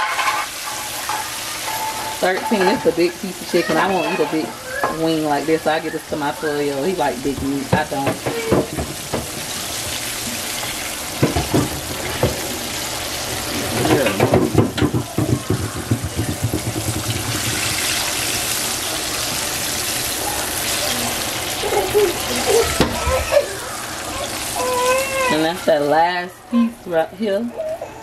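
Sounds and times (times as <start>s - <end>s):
spoon knocking and scraping pan: 0.0s - 9.9s, 10.6s - 12.5s, 13.5s - 18.3s
oil sizzling: 0.0s - 27.1s.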